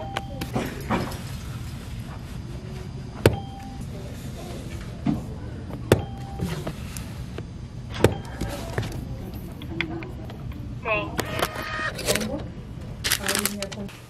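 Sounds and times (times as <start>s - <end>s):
low steady hum: 0.0s - 14.0s
short beeps: 3.3s - 3.8s, 6.0s - 6.6s.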